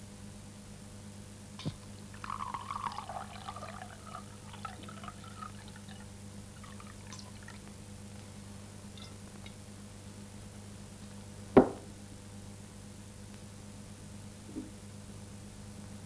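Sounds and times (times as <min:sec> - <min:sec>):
steady electrical hum: 0:00.0 - 0:16.0
liquid trickling into glass bottle: 0:01.6 - 0:07.7.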